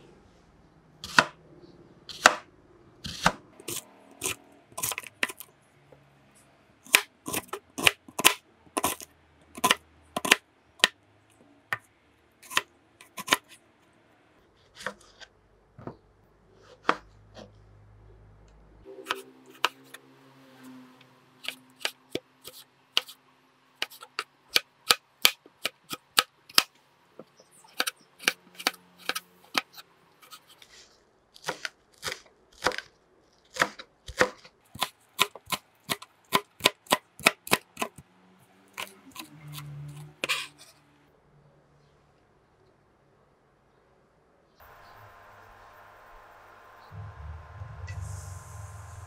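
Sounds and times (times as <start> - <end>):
knife chopping on plastic board: 1.0 - 1.4, 2.1 - 5.4, 9.6 - 11.0, 12.4 - 13.6, 16.7 - 17.5, 31.4 - 32.9, 33.5 - 38.0, 38.8 - 39.6.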